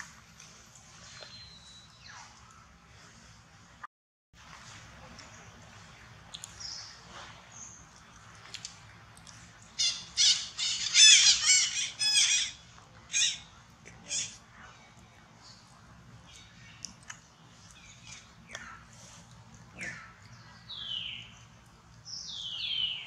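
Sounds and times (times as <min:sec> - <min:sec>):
high-pitched squawking calls: 0:09.8 - 0:14.4.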